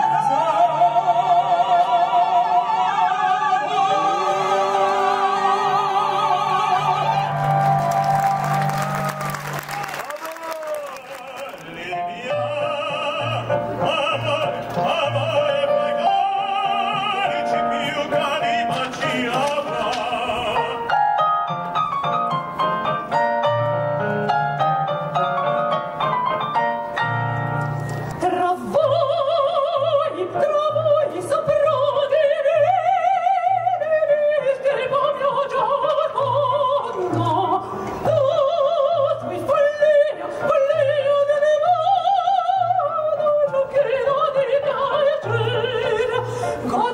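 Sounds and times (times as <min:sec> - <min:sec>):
operatic singing with vibrato: 0:00.0 - 0:21.3, 0:28.2 - 0:46.9
electronic keyboard piano accompaniment: 0:12.0 - 0:28.5.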